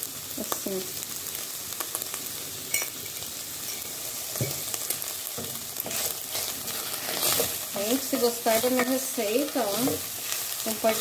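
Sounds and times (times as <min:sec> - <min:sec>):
meat sizzling in a pan: 0:00.0 - 0:11.0.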